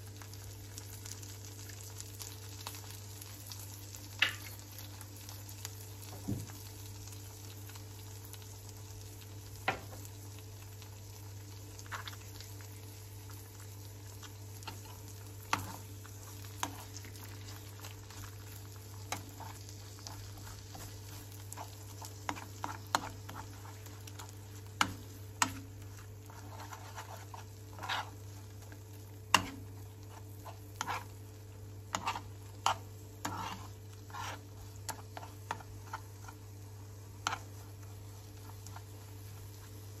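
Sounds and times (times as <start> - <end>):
eggs sizzling in oil: 0.0 - 40.0
metal spoon scraping a pan: 19.1 - 28.4, 29.3 - 31.1, 31.9 - 36.4, 37.2 - 37.7.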